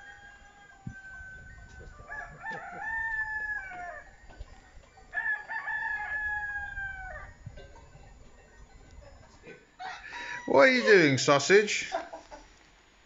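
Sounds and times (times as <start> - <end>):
rooster crowing: 0.0 - 4.3, 5.0 - 7.6, 9.4 - 11.2.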